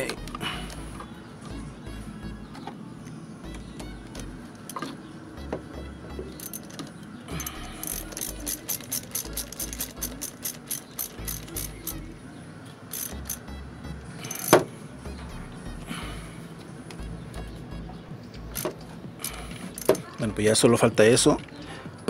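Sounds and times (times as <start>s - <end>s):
ratchet wrench clicking: 6.4s - 6.8s, 7.4s - 12.0s, 12.9s - 13.4s, 14.3s - 14.6s, 18.6s - 20.1s.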